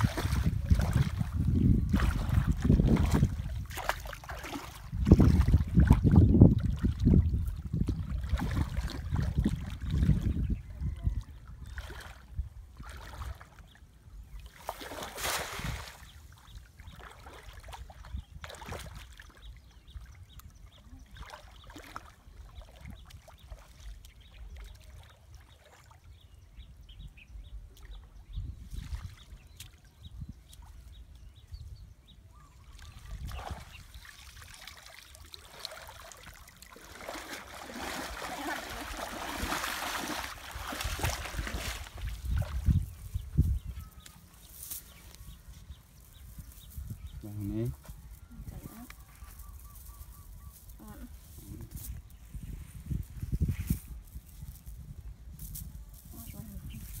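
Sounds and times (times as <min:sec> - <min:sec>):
shallow water splashing: 0:00.0 - 0:10.3, 0:14.4 - 0:19.4, 0:32.6 - 0:43.4.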